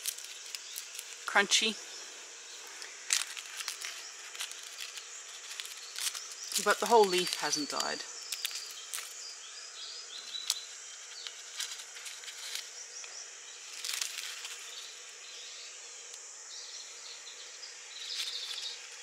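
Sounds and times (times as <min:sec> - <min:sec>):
dry leaf crackling: 0:00.0 - 0:16.2, 0:17.8 - 0:19.0.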